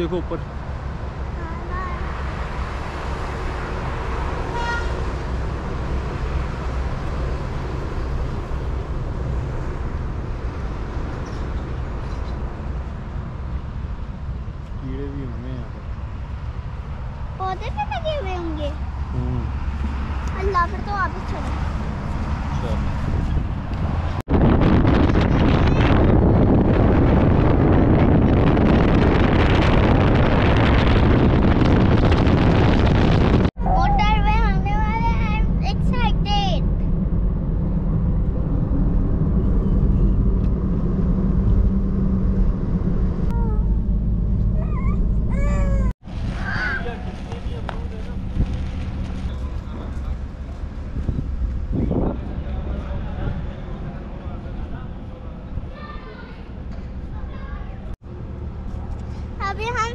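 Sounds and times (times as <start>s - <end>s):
road traffic rumble: 0.0s - 59.9s
vehicle horn toot: 4.5s - 5.0s
wind buffeting microphone: 15.8s - 58.0s.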